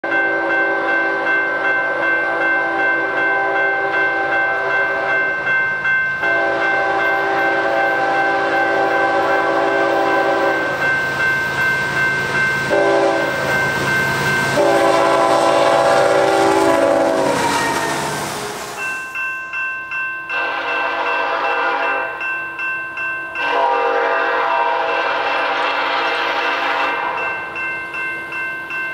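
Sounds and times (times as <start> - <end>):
locomotive air horn blasts: 0.3 - 5.4, 6.2 - 10.8, 12.7 - 13.5, 14.5 - 18.8, 20.3 - 22.1, 23.4 - 27.2.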